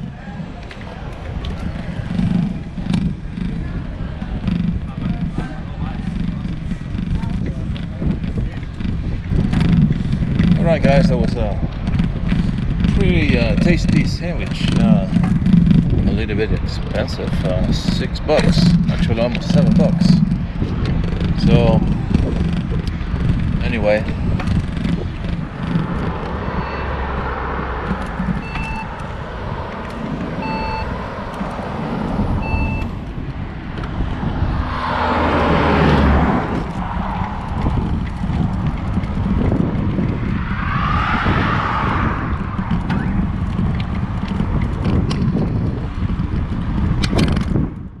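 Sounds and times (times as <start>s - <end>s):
cars passing: 0.0s - 47.9s
road noise: 0.0s - 48.0s
wind buffeting microphone: 0.0s - 48.0s
short electronic beep: 26.5s - 27.0s, 28.4s - 29.0s, 32.4s - 32.9s.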